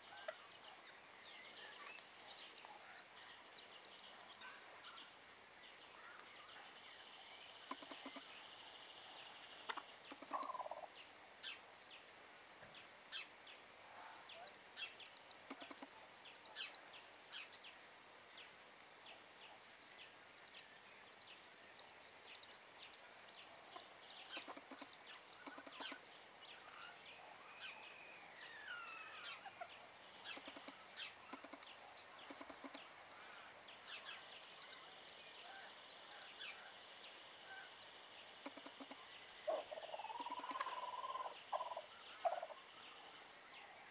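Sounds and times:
hen clucking softly: 0.0 - 0.6, 7.6 - 8.4, 9.5 - 10.9, 15.4 - 16.7, 23.6 - 33.5, 38.4 - 42.6
scratchy rustles of dry soil: 0.7 - 3.4.

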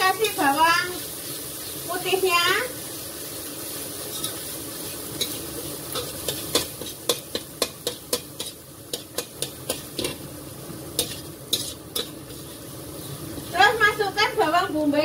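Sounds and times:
metal spoon scraping wok: 0.0 - 0.6, 4.0 - 13.5
garlic sizzling: 0.0 - 15.0.

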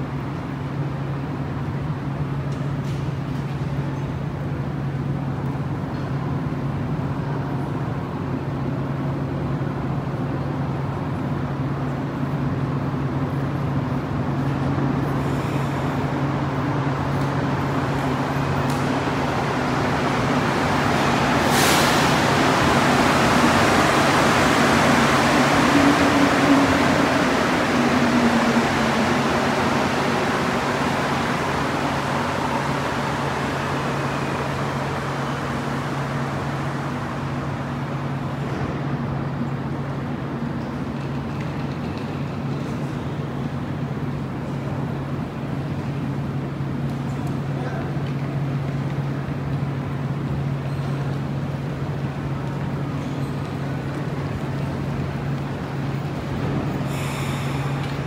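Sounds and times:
metro train pulling out: 0.0 - 58.0
sharp hiss: 21.4 - 22.4, 56.8 - 58.0.

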